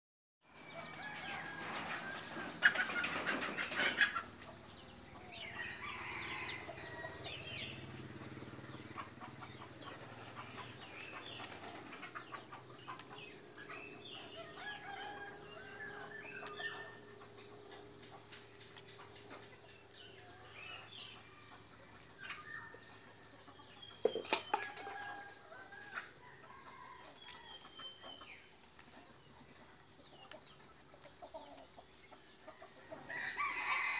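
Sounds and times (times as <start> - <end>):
chickens clucking: 0.8 - 33.2
chickens flapping wings: 1.5 - 4.2, 11.3 - 12.2.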